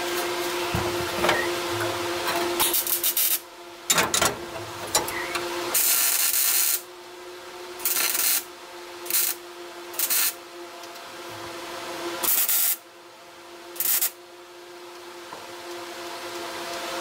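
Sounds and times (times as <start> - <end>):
steady hum: 0.0 - 5.8
welding arc sizzling: 0.0 - 6.9, 7.8 - 10.4, 12.2 - 12.8, 13.8 - 14.2.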